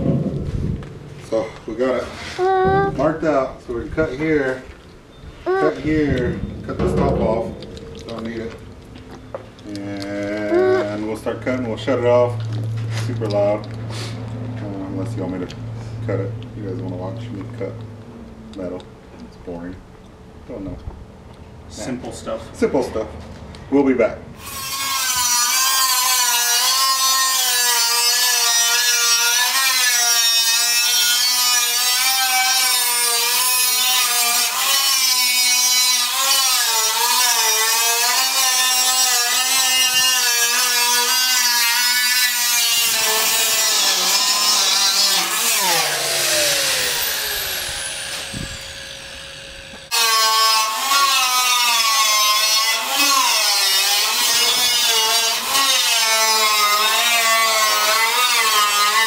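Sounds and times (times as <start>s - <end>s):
angle grinder cutting metal: 24.4s - 59.0s.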